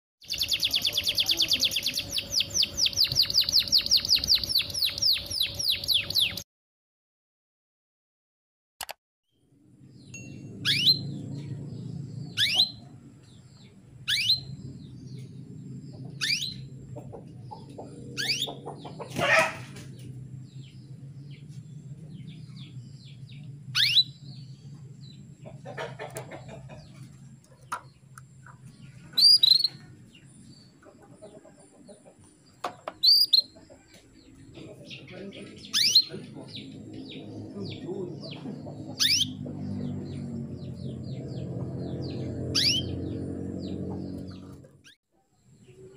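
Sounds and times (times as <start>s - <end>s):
steady low hum: 9.5s - 44.9s.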